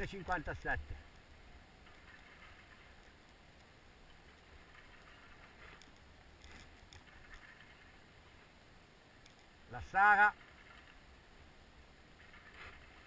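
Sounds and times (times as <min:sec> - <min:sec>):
faint outdoor hiss: 0:00.0 - 0:13.0
soft ticks: 0:01.8 - 0:07.5, 0:09.2 - 0:09.6.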